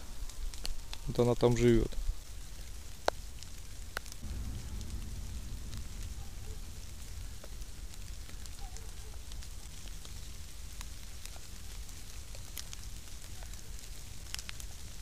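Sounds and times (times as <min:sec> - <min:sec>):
rain pattering on leaves: 0:00.0 - 0:15.0
low rumble: 0:04.2 - 0:12.3.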